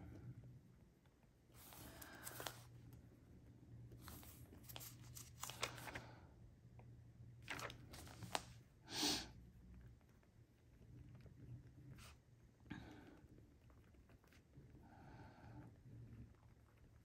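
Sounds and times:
paper rustle: 0:01.6 - 0:02.7, 0:04.0 - 0:06.1, 0:07.4 - 0:08.6.

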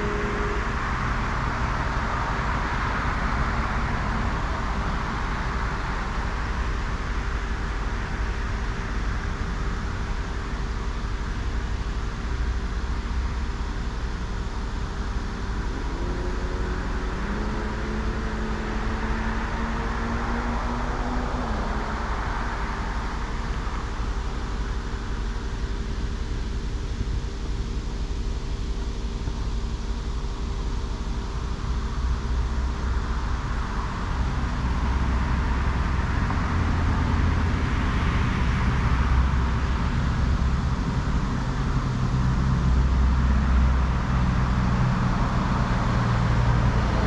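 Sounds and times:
vehicle accelerating through gears: 0:00.0 - 0:04.5, 0:15.6 - 0:23.1
low engine rumble: 0:00.0 - 0:47.0.

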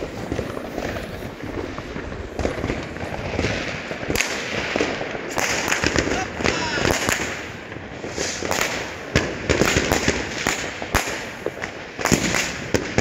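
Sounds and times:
firework bangs: 0:00.0 - 0:13.0
fireworks popping and crackling: 0:00.0 - 0:13.0.

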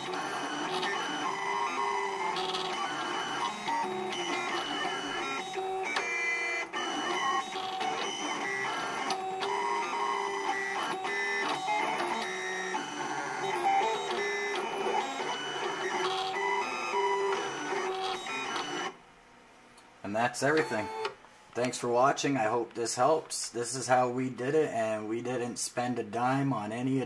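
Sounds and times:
plotter motors whining: 0:00.0 - 0:19.0, 0:20.4 - 0:21.1.

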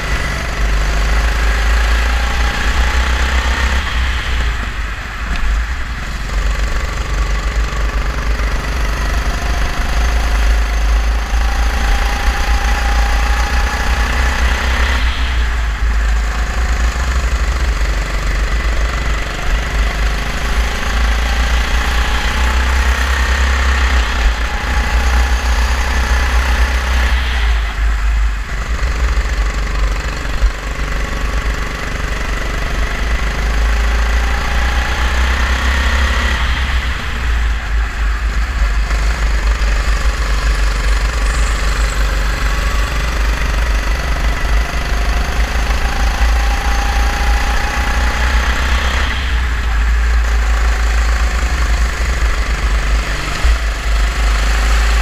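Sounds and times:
racing kart engine: 0:00.0 - 0:55.0.

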